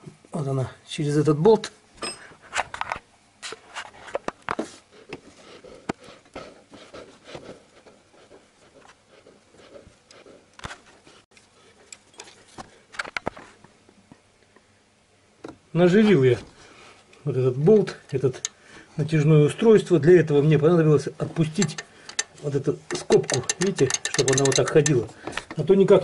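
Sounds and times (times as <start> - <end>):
metal parts clicking and knocking: 21.4 - 25.6.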